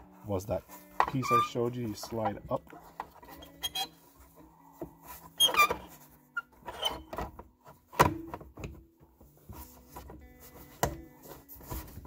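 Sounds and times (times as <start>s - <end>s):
squeaky rubbing on plastic trim: 1.0s - 4.2s, 5.1s - 7.3s.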